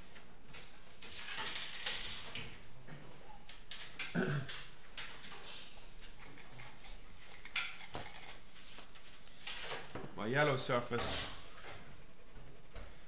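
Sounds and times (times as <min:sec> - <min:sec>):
pencils clicking on a desk: 0:06.1 - 0:08.4.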